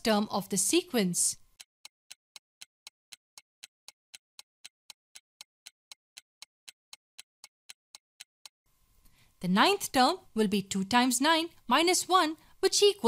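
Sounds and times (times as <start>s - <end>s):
timer ticking: 0.1s - 8.6s.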